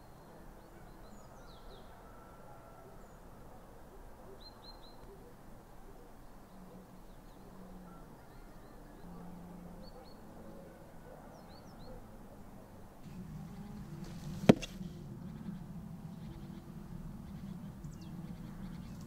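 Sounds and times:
sharp loud knock: 14.4s - 14.8s.

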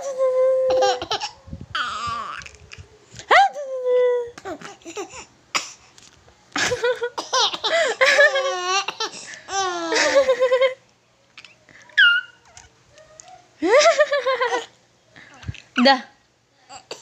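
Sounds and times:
baby giggling: 0.7s - 2.3s, 6.6s - 10.8s
baby squealing: 12.0s - 12.5s.

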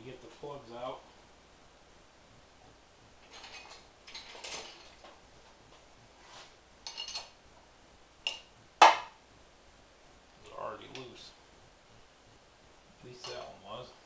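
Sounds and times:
metal tools clinking: 3.2s - 5.0s.

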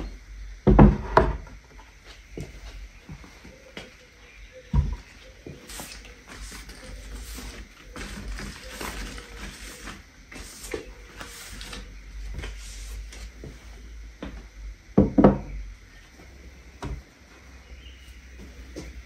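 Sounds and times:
objects knocking on wooden dresser: 0.6s - 1.5s, 15.0s - 15.6s
objects rubbing on wooden dresser: 5.5s - 13.8s.

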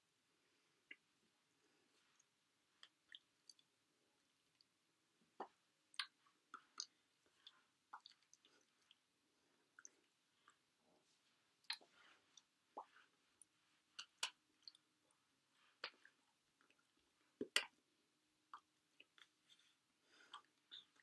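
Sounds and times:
mouth clicks and smacks: 2.2s - 3.8s, 5.4s - 9.0s, 11.6s - 14.9s, 15.8s - 17.8s, 18.4s - 19.4s, 20.1s - 21.0s.

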